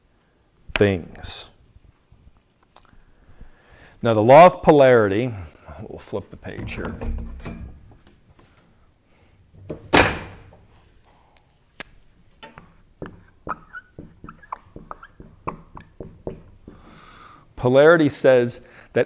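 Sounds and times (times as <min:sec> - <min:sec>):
marker squeaking on paper: 0:12.6 - 0:16.8.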